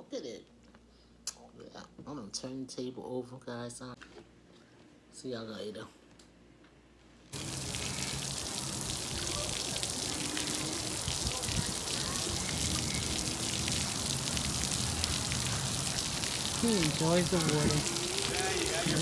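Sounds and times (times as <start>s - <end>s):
fountain jet spraying water: 7.4s - 19.0s
faint voices: 9.0s - 14.4s, 15.2s - 19.0s.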